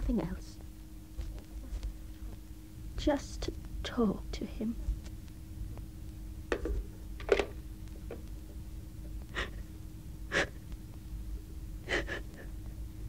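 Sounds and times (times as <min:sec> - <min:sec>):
woman sobbing: 0:09.3 - 0:09.7, 0:10.3 - 0:10.6, 0:11.8 - 0:12.5.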